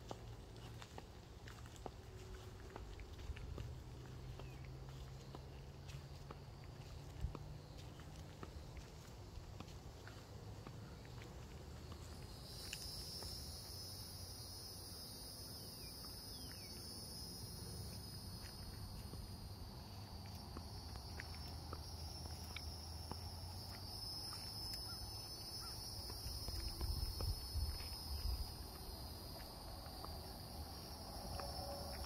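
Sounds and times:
insects trilling: 0:10.0 - 0:32.0.

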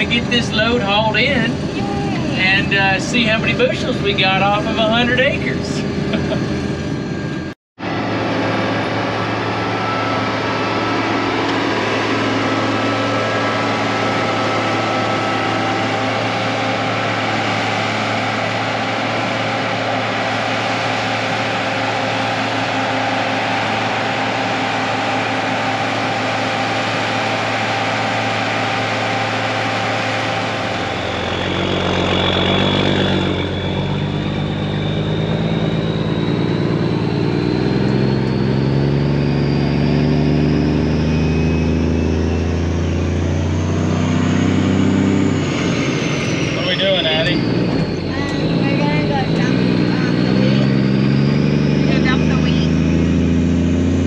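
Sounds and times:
heavy machinery engine running: 0:00.0 - 0:54.0
thin high whine: 0:00.0 - 0:54.0.

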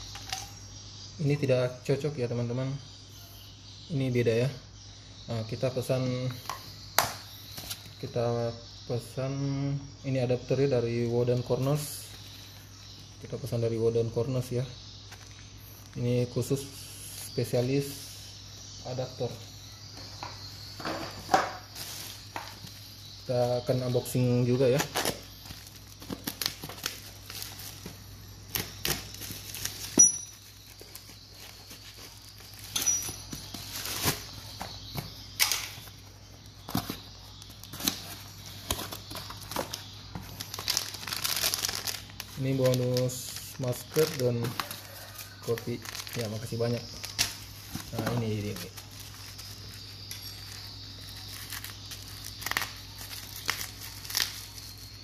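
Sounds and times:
plastic packaging crinkling: 0:21.1 - 0:36.0, 0:36.6 - 0:55.0.

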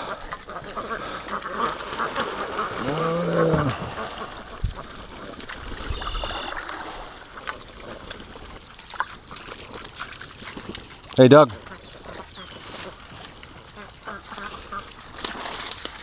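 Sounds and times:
paddle splashing in water: 0:00.0 - 0:16.0
low voice-like sound: 0:02.8 - 0:03.9.

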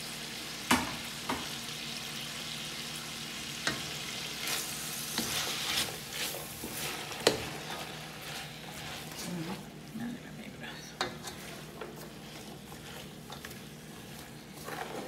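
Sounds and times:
vegetables sizzling in a pan: 0:00.0 - 0:15.0
spatula scraping rustles: 0:03.7 - 0:09.8, 0:10.6 - 0:15.0.

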